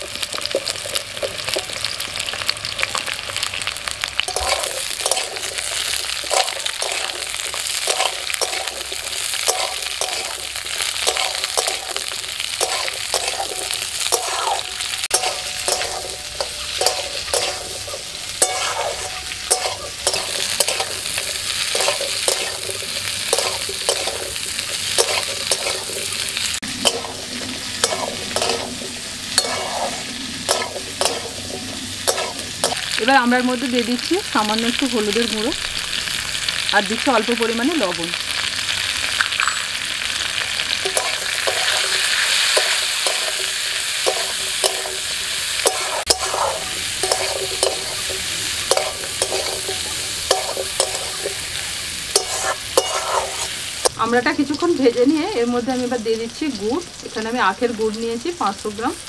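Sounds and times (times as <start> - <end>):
food sizzling in oil: 0.0 - 59.0
metal spatula scraping a wok: 4.2 - 33.0, 40.8 - 54.0.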